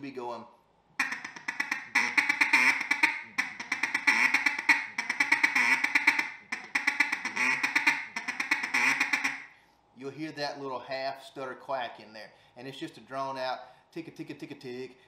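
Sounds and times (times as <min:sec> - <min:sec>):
duck call feed chuckle: 0:01.0 - 0:09.4.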